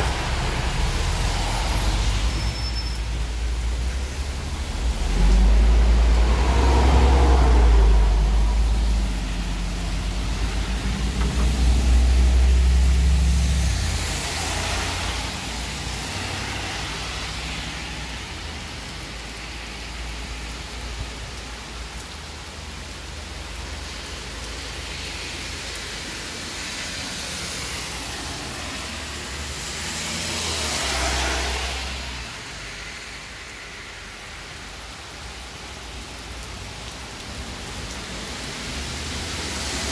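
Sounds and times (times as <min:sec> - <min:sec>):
bus engine rumbling: 0:00.0 - 0:14.3
heavy rain on road: 0:00.0 - 0:39.9
vehicle swishing past: 0:04.1 - 0:17.6.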